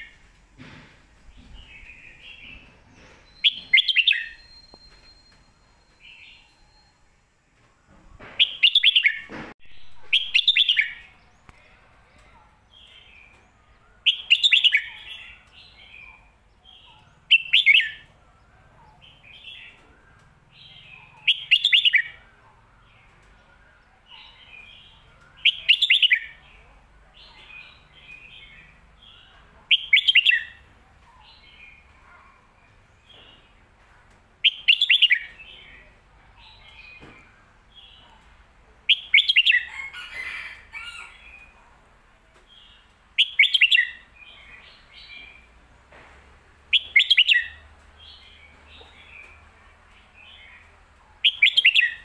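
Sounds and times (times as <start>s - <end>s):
soft bird chirps: 1.2s - 7.1s
bird warbling song: 1.3s - 6.9s, 46.7s - 52.0s.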